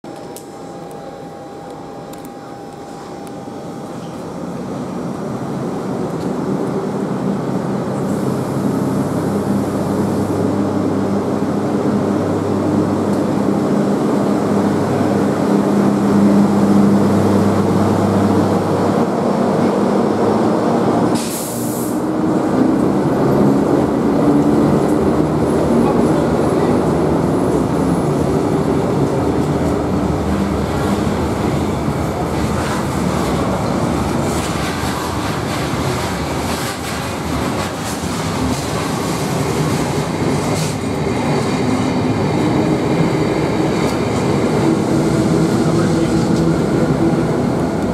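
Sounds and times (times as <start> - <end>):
train wheels rolling: 27.5 - 47.9.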